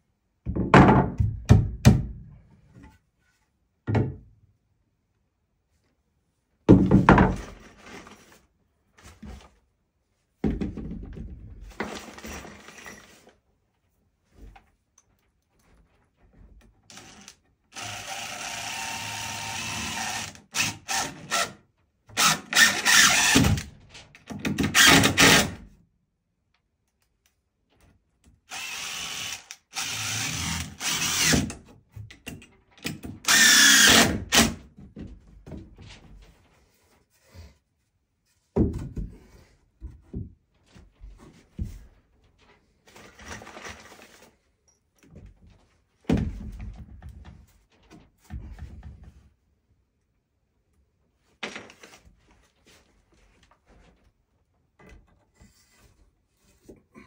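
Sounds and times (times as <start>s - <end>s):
impact driver driving screws: 22.2s - 23.7s, 24.4s - 25.6s, 28.5s - 31.6s, 32.8s - 34.6s.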